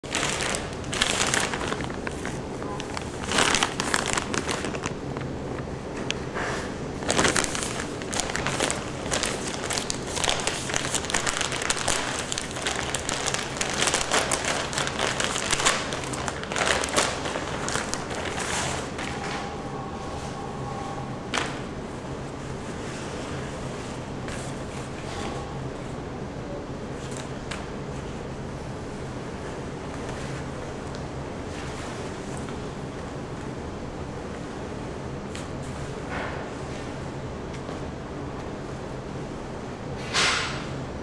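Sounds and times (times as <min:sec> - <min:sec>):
plastic bag crinkling: 0:00.0 - 0:06.2, 0:07.0 - 0:19.5.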